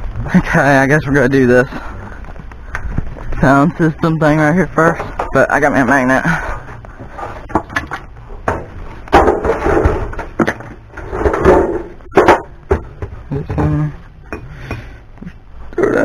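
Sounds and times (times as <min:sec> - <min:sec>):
rustling scrapes: 0:06.4 - 0:12.2.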